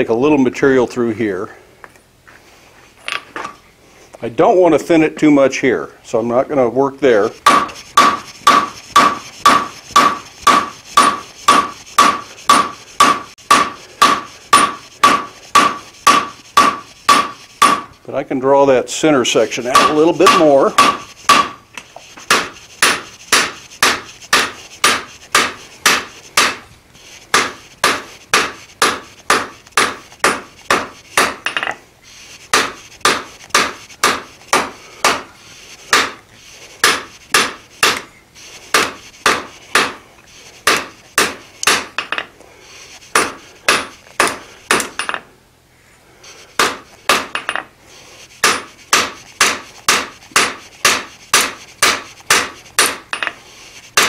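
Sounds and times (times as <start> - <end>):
hammer striking steel on anvil: 7.4 - 17.9, 19.7 - 21.6, 22.3 - 26.6, 27.3 - 31.8, 32.5 - 35.3, 38.7 - 40.0, 40.7 - 42.3, 43.2 - 45.3, 46.6 - 47.7, 48.4 - 53.4.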